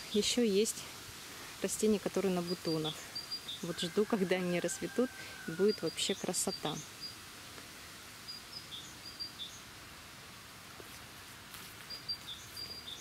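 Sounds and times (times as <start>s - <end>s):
faint outdoor background noise: 0.0s - 13.0s
bird chirping: 2.2s - 4.0s, 5.4s - 7.2s, 8.2s - 9.7s, 11.8s - 13.0s.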